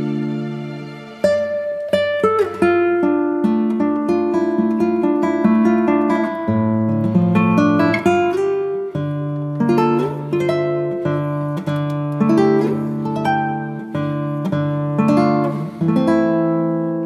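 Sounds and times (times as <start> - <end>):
acoustic guitar playing: 0.0 - 17.0.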